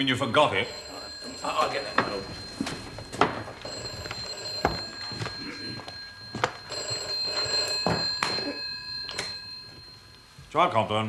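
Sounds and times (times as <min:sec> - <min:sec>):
telephone bell ringing: 0:00.0 - 0:10.6
footsteps knocking: 0:00.7 - 0:08.4.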